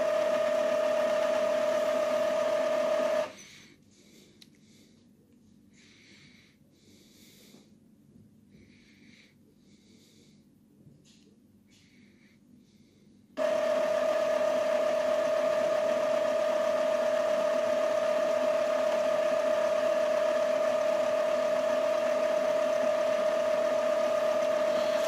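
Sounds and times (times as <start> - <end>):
printer motor humming: 0.0 - 3.4, 13.4 - 25.0.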